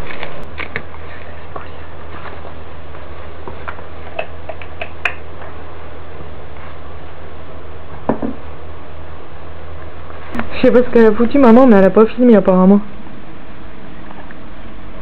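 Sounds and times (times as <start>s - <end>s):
electrical hum and hiss: 0.0s - 15.0s.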